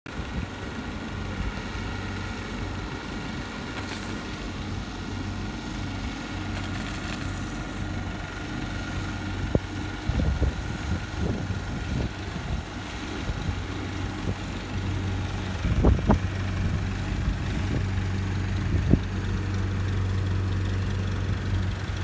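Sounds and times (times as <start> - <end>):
engine low hum: 0.1 - 22.0.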